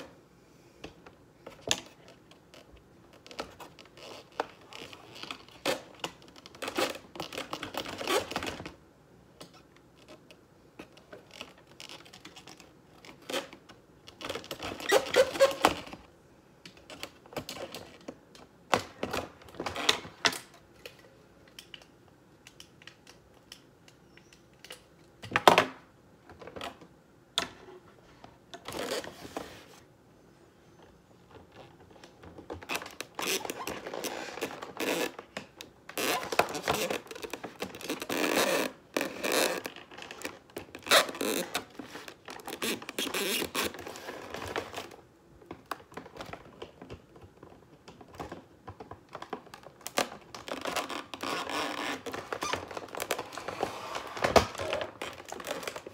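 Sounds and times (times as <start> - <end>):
cardboard rustling and scraping: 27.9 - 29.9, 50.5 - 55.9.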